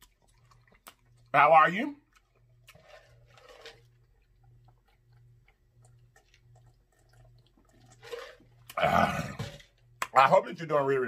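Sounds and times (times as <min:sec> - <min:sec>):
faint swallowing gulps: 0:02.0 - 0:10.0.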